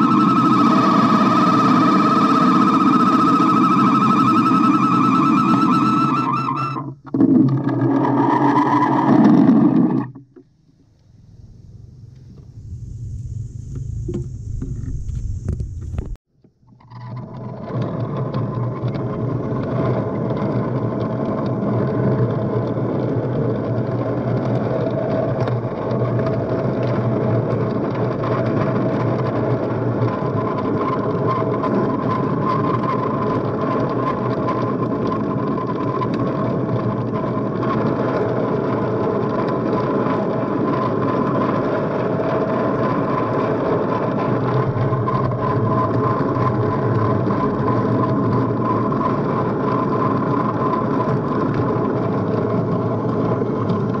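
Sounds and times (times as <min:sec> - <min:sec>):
high even whine: 0:00.0 - 0:16.2
rail cart rolling on track: 0:17.4 - 0:54.0.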